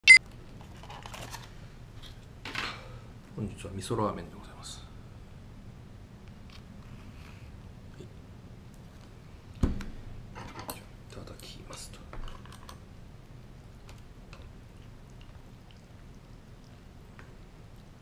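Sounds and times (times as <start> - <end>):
soft ticks of mixing: 11.1 - 18.0.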